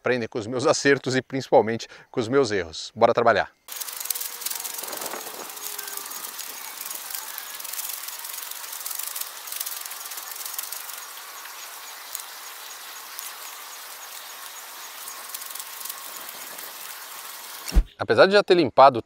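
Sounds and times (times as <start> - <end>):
repeated insect chirp: 3.6 - 17.8
high-pitched insect buzzing: 3.7 - 17.8.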